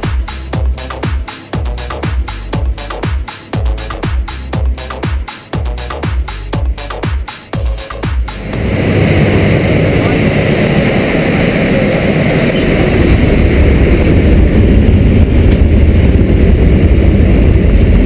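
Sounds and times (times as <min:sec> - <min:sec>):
airplane engine drone in cabin: 0:08.2 - 0:18.0.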